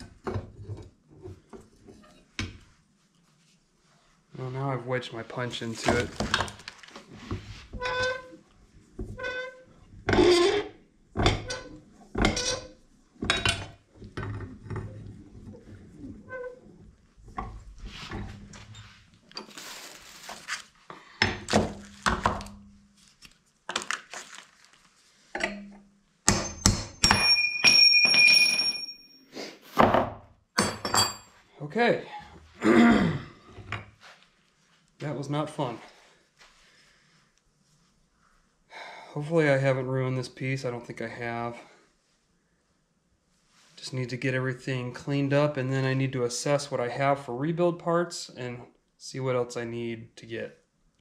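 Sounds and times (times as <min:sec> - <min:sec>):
hammer striking steel punch: 0:26.3 - 0:28.4
steel high ring: 0:26.4 - 0:29.3.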